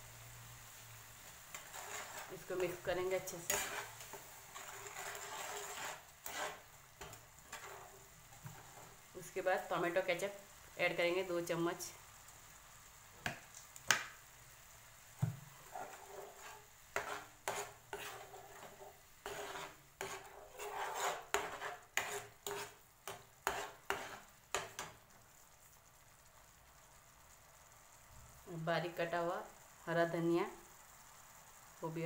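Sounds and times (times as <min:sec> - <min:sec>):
spoon knocking and scraping pan: 0:01.5 - 0:09.0, 0:13.2 - 0:14.2, 0:15.2 - 0:25.1.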